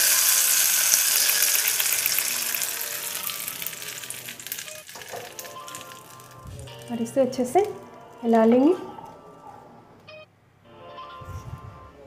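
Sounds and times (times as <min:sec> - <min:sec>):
hot oil sizzling: 0:00.0 - 0:07.6.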